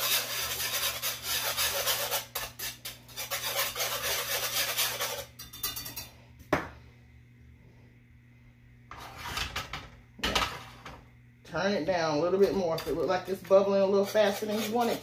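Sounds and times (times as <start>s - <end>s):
wire whisk scraping a metal pan: 0.0s - 6.1s, 12.4s - 15.0s.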